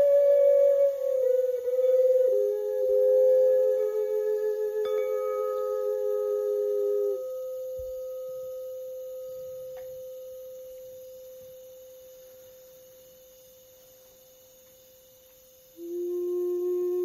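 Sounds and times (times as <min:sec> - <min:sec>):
pure ringing tone: 0:00.7 - 0:13.6.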